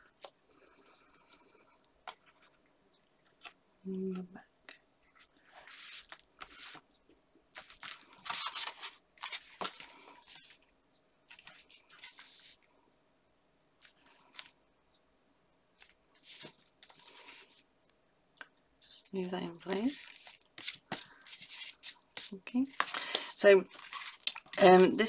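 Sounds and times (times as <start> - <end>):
card rustling and scraping: 5.0 - 6.8, 7.6 - 10.6, 11.3 - 12.6, 15.8 - 17.6, 19.6 - 24.6.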